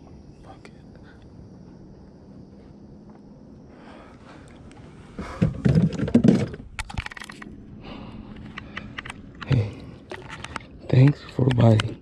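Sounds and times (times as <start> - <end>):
kayak knocks and scrapes: 5.2 - 6.7
sharp clicks and ticks: 8.3 - 12.0.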